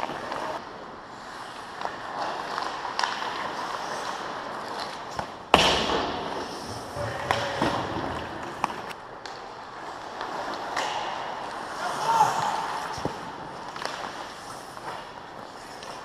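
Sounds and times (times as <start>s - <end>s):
sticks and skates on ice: 0.0s - 16.0s
puck banging against boards: 5.2s - 9.4s.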